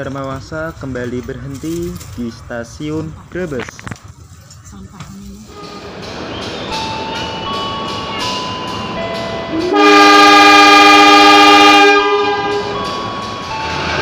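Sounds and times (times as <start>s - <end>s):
train rumble: 0.0s - 14.0s
locomotive horn: 5.5s - 6.0s, 9.5s - 13.0s.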